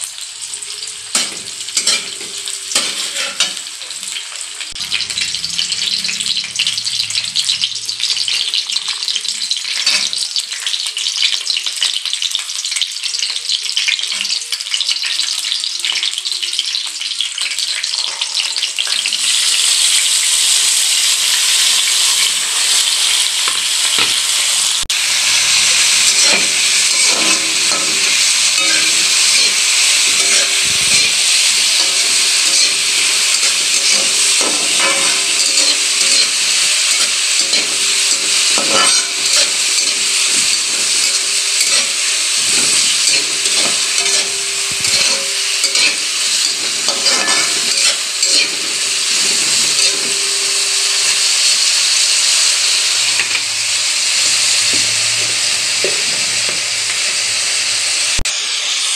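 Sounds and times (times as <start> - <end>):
vegetables sizzling in oil: 0.0 - 58.9
spatula scraping metal pan: 1.1 - 4.0, 25.6 - 51.2.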